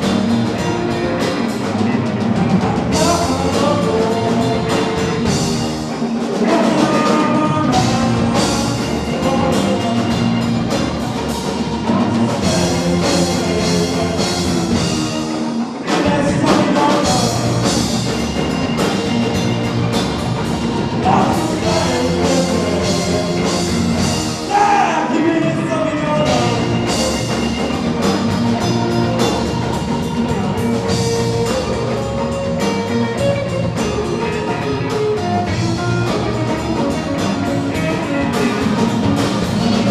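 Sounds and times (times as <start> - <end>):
acoustic guitar: 0.0 - 39.9
drum kit: 0.0 - 39.9
electric guitar: 0.0 - 39.9
keyboard: 0.0 - 39.9
person singing lead vocal: 2.5 - 10.8, 11.5 - 18.0, 21.0 - 27.0.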